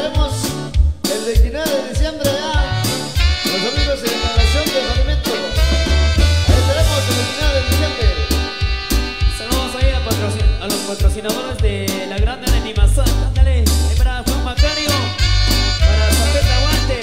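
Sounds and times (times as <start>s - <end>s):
lead vocal singing: 0.0s - 8.2s, 9.2s - 17.0s
electric bass: 0.0s - 17.0s
keyboard: 0.0s - 17.0s
percussion dance beat: 0.1s - 17.0s
horns: 2.3s - 11.6s, 14.5s - 17.0s.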